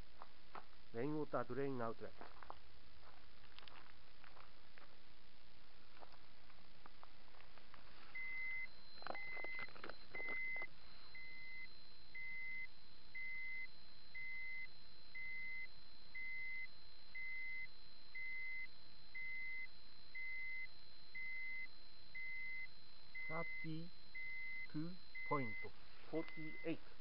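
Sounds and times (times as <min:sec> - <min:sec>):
dosimeter beeping: 0:08.0 - 0:27.0.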